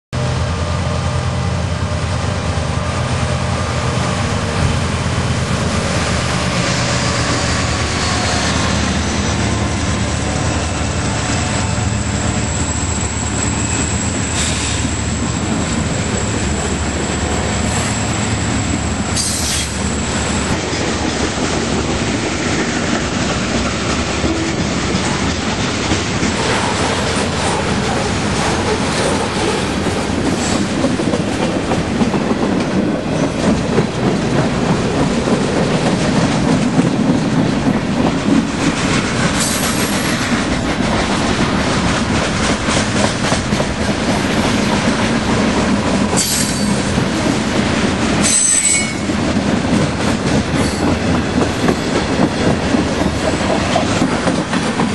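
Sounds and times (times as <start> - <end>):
diesel locomotive engines droning: 0.2 - 54.9
rumble and clatter of train cars: 0.2 - 54.9
high wheel squeal: 6.6 - 20.5, 48.2 - 49.1.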